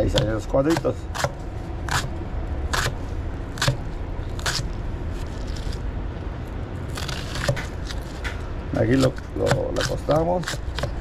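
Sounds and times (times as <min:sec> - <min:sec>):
knife chopping onion on board: 0:00.0 - 0:02.1, 0:08.9 - 0:11.0
steady low rumble: 0:00.0 - 0:11.0.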